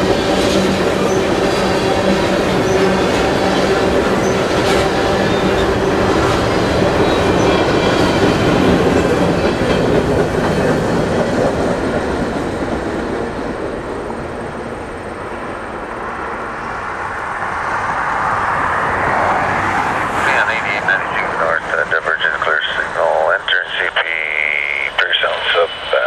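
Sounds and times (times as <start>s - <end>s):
freight train wheels clicking: 0.0s - 14.5s.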